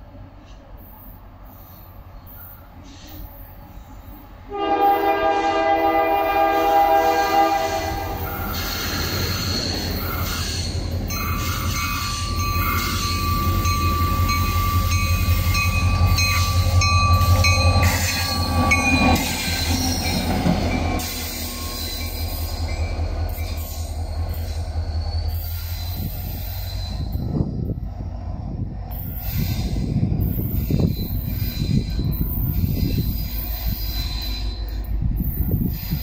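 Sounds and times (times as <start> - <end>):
diesel locomotive rumble: 0.0 - 36.0
rail noise: 0.0 - 36.0
wheel squeal: 8.2 - 27.4, 28.9 - 36.0.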